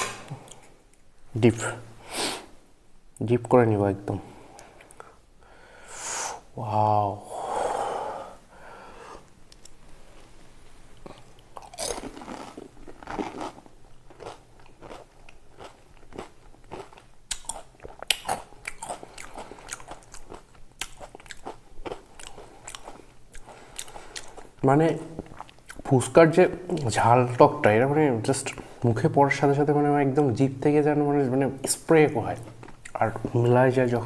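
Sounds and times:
crunching and chewing: 11.0s - 25.9s, 32.4s - 33.4s.

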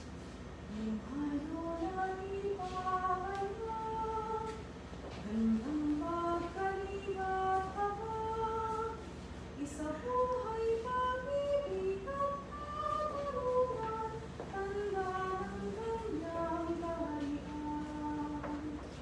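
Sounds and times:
woman singing a hymn: 0.6s - 19.0s.

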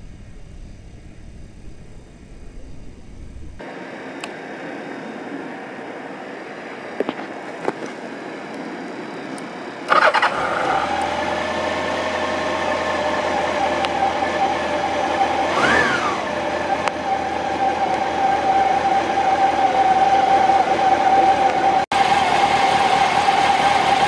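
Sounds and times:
motorcycle engine idling: 0.0s - 3.6s, 21.6s - 24.0s
short rising and falling whine: 0.0s - 24.0s
electric starter cranking: 9.9s - 12.0s.

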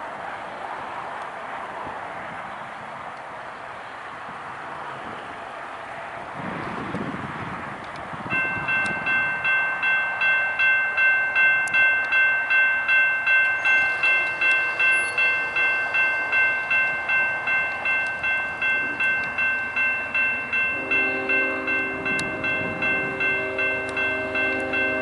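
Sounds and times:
crossing bell ringing: 8.3s - 25.0s
train air horn chord: 20.6s - 25.0s.

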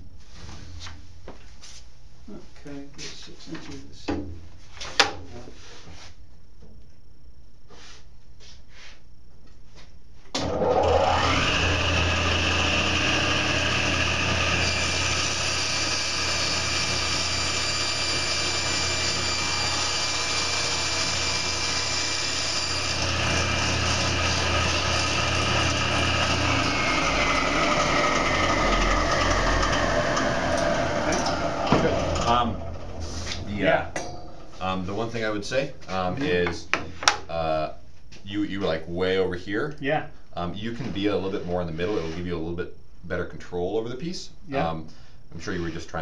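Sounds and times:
table saw motor whine: 10.4s - 33.1s
saw blade cutting board: 11.2s - 32.2s.

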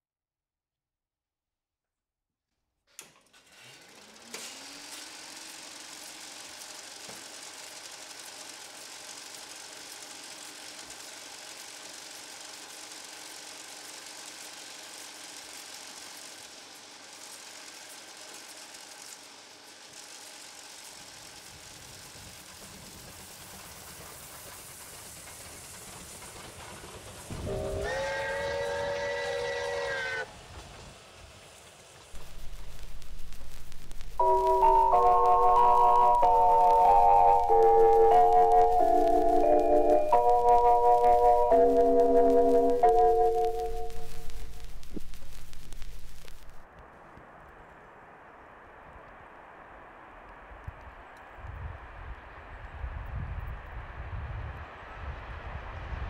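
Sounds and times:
electric train rushing: 3.6s - 46.6s
train horn blast: 27.3s - 30.4s.

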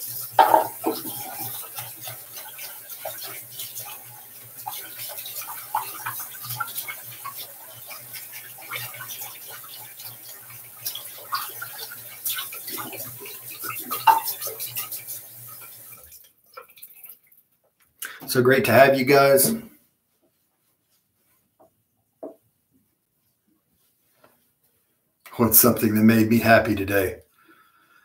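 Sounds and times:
running water at a sink: 0.0s - 17.4s, 18.0s - 19.7s, 25.3s - 27.2s.

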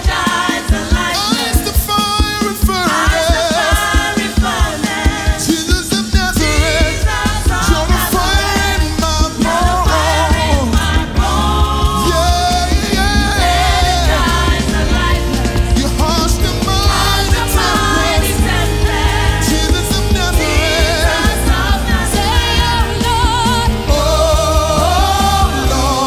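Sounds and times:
band accompaniment: 0.0s - 26.0s
lead singer and choir singing: 0.0s - 26.0s
heavy bass: 6.2s - 26.0s.

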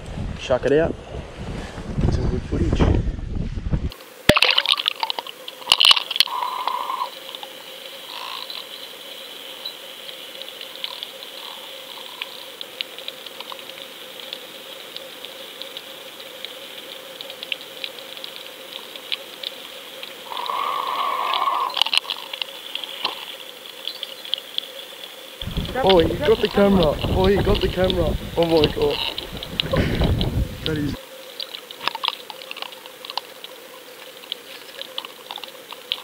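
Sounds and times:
faint underwater hum: 4.0s - 36.0s
small clicks and crackles: 4.3s - 8.8s, 10.0s - 36.0s
underwater rushing: 25.4s - 31.0s.

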